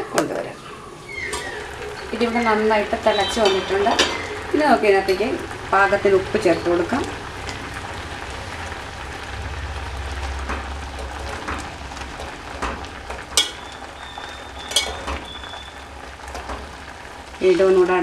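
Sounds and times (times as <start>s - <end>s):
water boiling and bubbling: 0.0s - 18.0s
metal spoon clinking on pot: 14.6s - 15.4s.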